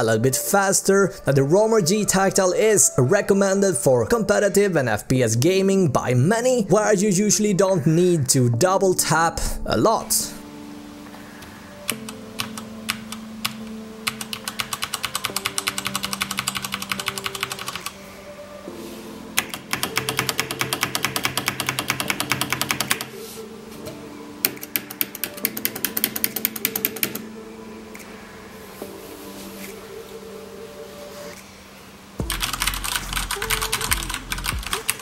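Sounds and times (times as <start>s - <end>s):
mechanical keyboard typing: 11.9s - 18.0s, 19.4s - 23.1s, 24.4s - 27.2s, 32.2s - 35.0s.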